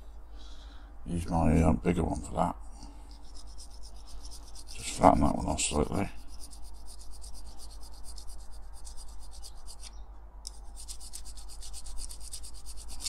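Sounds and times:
metal file rasping on metal: 0:03.1 - 0:09.9, 0:10.5 - 0:13.0.

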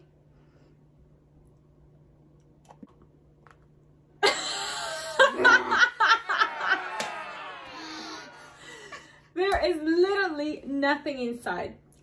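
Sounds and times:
woman laughing loudly: 0:04.2 - 0:07.1.

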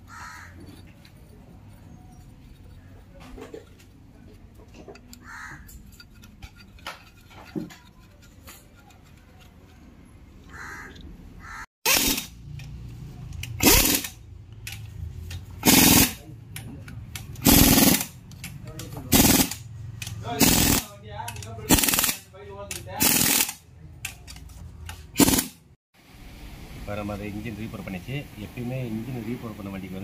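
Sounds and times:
tools clicking and knocking: 0:00.5 - 0:11.1, 0:11.9 - 0:25.5
pneumatic impact wrench bursts: 0:11.8 - 0:12.6, 0:13.4 - 0:14.2, 0:15.5 - 0:16.3, 0:17.3 - 0:18.2, 0:19.1 - 0:19.7, 0:20.3 - 0:20.9, 0:21.7 - 0:22.2, 0:23.0 - 0:23.7, 0:25.1 - 0:25.6.

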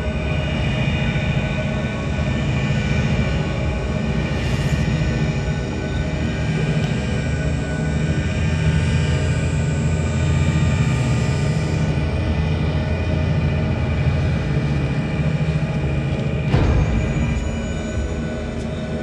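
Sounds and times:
low rumbling drone: 0:00.0 - 0:19.0
held ambient tones: 0:12.4 - 0:19.0.

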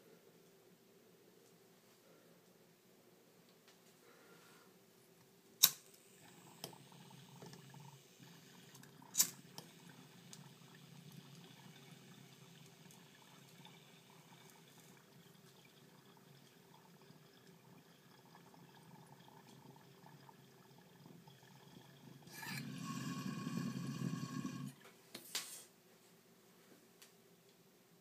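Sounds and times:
water gurgling in bong: 0:06.1 - 0:24.8.

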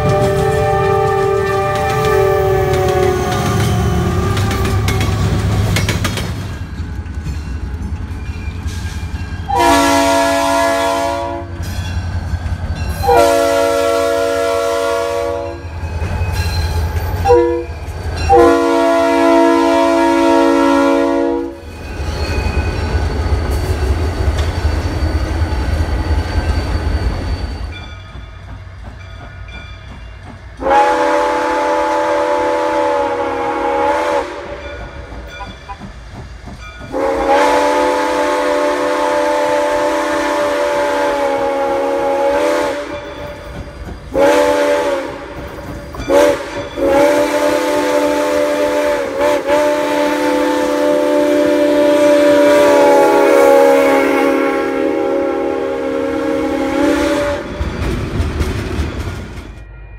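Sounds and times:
locomotive air horn: 0:00.0 - 0:04.9, 0:09.5 - 0:11.6, 0:13.0 - 0:15.7, 0:17.2 - 0:21.6, 0:30.6 - 0:34.7, 0:36.9 - 0:43.2, 0:44.1 - 0:45.4, 0:46.1 - 0:57.6
locomotive engine rumbling: 0:00.0 - 0:59.6
train wheels rumbling: 0:00.0 - 0:59.9.

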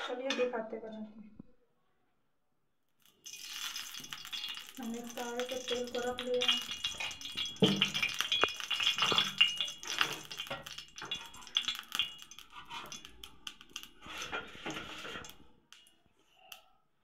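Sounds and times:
metal utensils clinking: 0:03.3 - 0:15.4.

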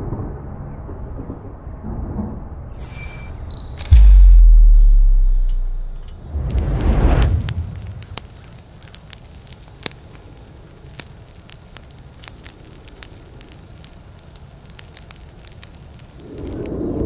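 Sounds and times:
bonfire crackling: 0:03.9 - 0:17.0.

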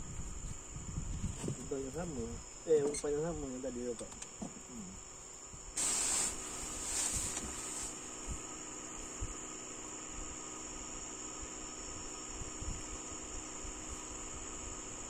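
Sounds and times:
high-pitched insect drone: 0:00.0 - 0:15.0
loud hiss bursts: 0:05.6 - 0:08.5.

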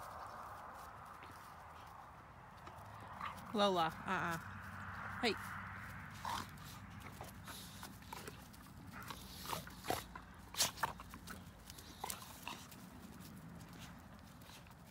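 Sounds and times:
puppies scuffling on grass: 0:00.0 - 0:14.9.

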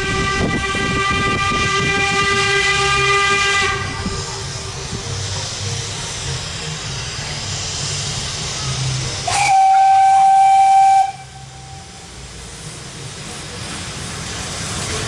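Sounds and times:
steam whistle blast: 0:00.0 - 0:04.0, 0:09.2 - 0:12.1
steam locomotive hiss and running: 0:00.0 - 0:15.0.

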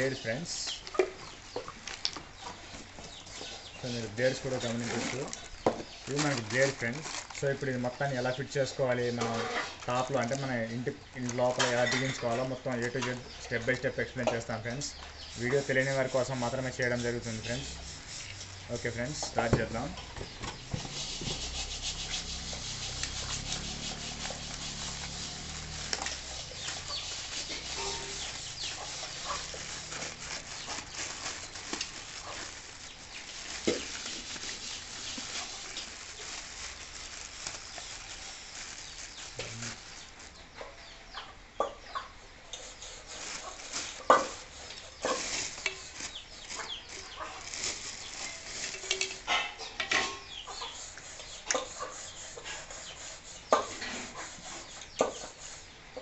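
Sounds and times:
plastic wrapping rustling: 0:00.0 - 0:40.5, 0:42.6 - 0:49.4.

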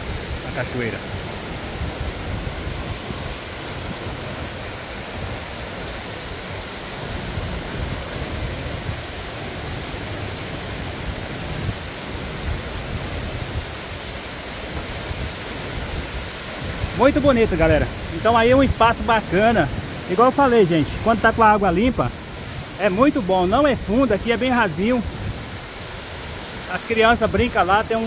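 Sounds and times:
waterfall and stream rushing: 0:00.0 - 0:28.0.

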